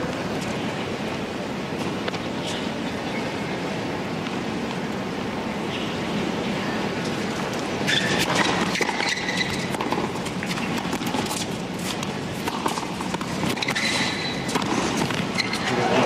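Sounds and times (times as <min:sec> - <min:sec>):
stadium crowd hum: 0:00.0 - 0:16.0
tennis racquets striking ball: 0:07.8 - 0:15.7.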